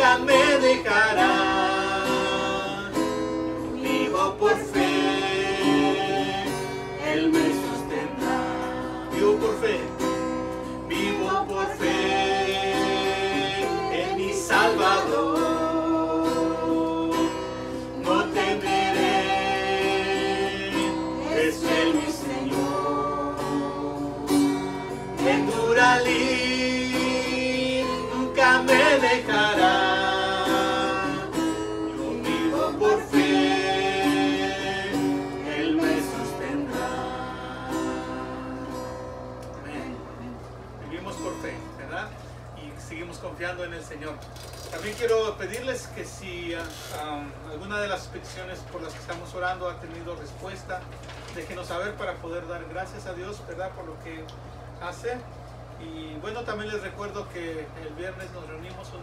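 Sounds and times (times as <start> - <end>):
person singing a hymn: 0.0 - 10.1, 10.8 - 40.4
acoustic guitar strumming: 0.0 - 42.9.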